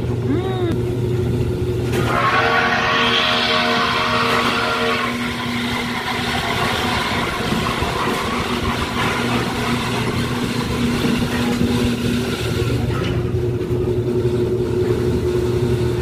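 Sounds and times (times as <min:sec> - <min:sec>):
ride car motor humming: 0:00.0 - 0:16.0
wheels rumbling on track: 0:00.0 - 0:16.0.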